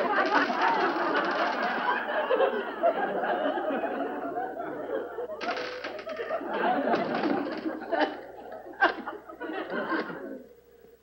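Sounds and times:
studio audience laughing: 0.0 - 10.6.

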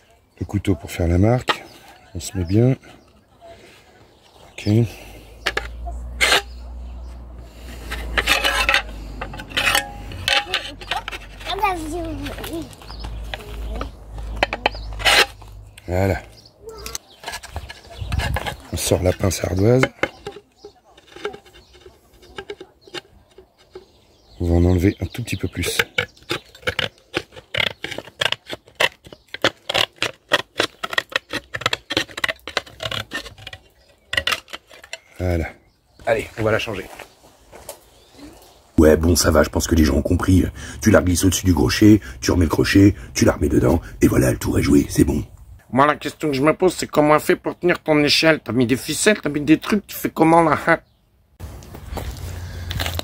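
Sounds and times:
knife scraping slate: 5.4 - 6.6, 7.5 - 12.5, 14.4 - 15.4, 16.9 - 24.0, 25.7 - 35.1
slate cutter snipping: 5.5 - 6.6, 14.4 - 15.4.

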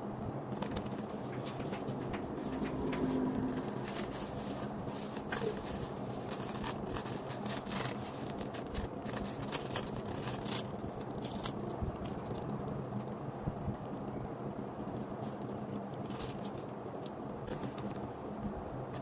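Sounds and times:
plastic bags crinkling: 2.5 - 12.5, 15.5 - 18.0.

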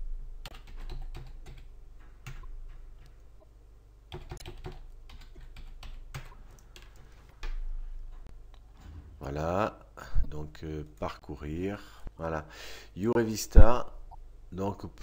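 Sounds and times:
low steady hum: 0.0 - 15.0
typing on computer keyboard: 0.4 - 3.1, 4.1 - 7.6.

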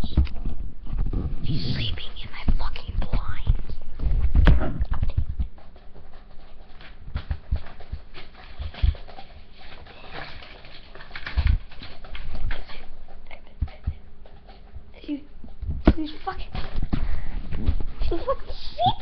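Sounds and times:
window blinds rustling and rattling: 6.8 - 12.9.

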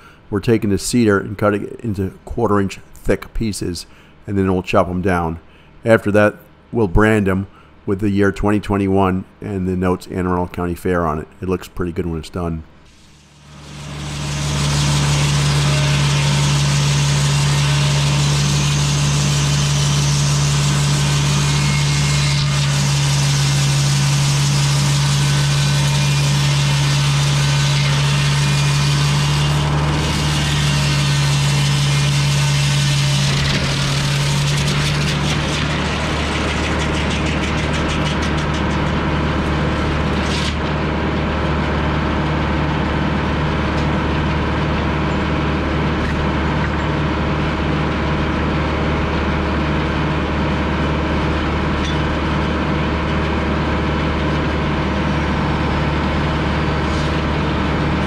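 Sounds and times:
circular saw ripping log: 12.9 - 41.0, 54.3 - 58.0
diesel engine droning: 13.4 - 58.0.

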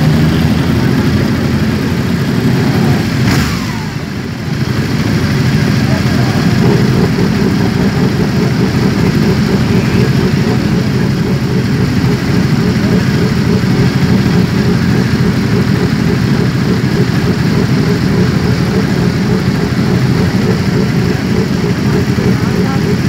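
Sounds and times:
motorcycle engines idling: 0.0 - 23.0.

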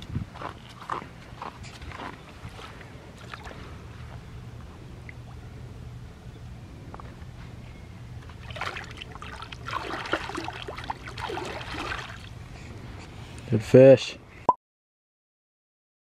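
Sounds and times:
water sloshing: 3.2 - 3.8, 8.2 - 12.4
fish splashing: 8.4 - 12.4.

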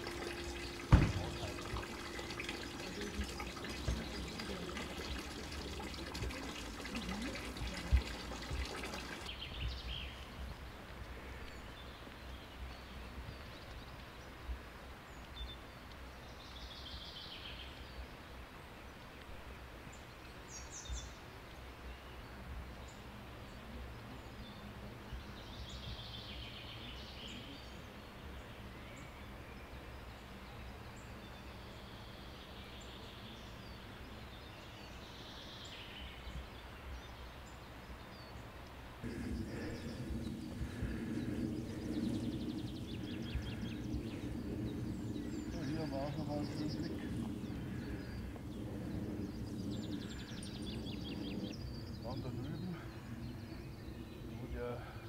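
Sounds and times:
steady hum: 0.0 - 9.3, 39.0 - 55.0
low steady rumble: 0.0 - 9.4, 38.9 - 55.0
birds calling: 0.0 - 14.3, 34.8 - 55.0
sharp knocks: 0.8 - 1.9.

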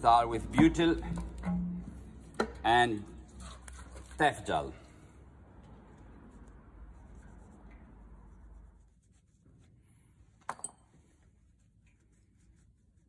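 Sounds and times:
cloth rag rubbing on metal: 5.9 - 10.4, 11.0 - 13.0.

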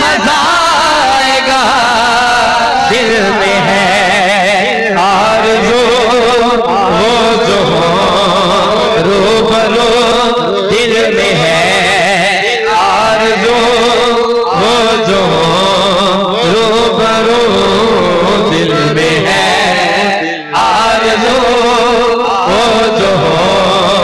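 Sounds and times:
man singing melismatic line: 0.0 - 24.0.

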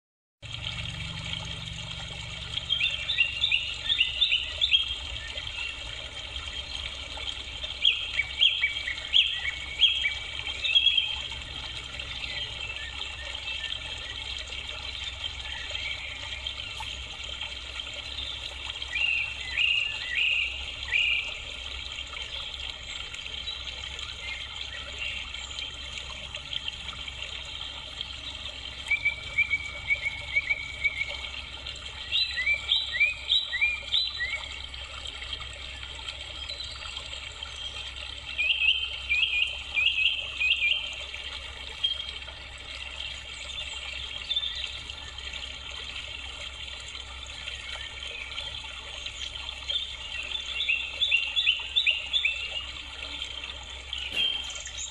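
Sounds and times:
birds chirping: 2.2 - 21.5, 22.1 - 34.6, 47.4 - 54.9.

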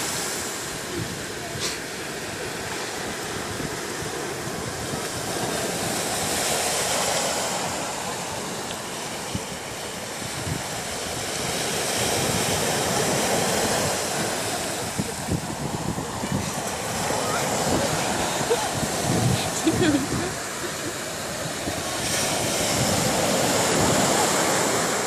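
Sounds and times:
small waves washing up a beach: 0.0 - 25.0.

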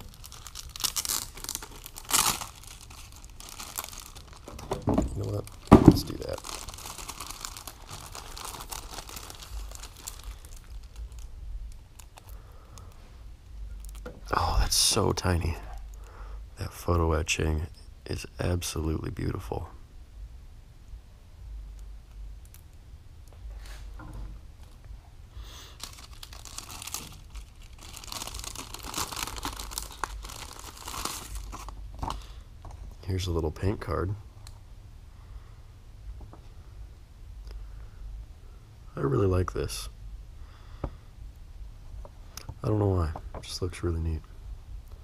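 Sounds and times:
plastic bags crinkling: 0.0 - 12.9, 25.7 - 33.0.

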